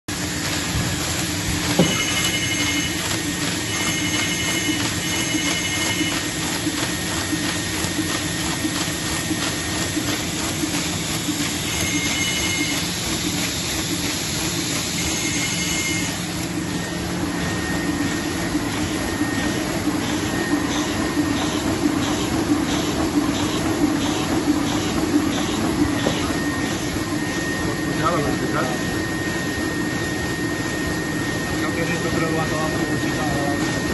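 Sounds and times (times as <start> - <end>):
printing press clattering: 0.1 - 29.0.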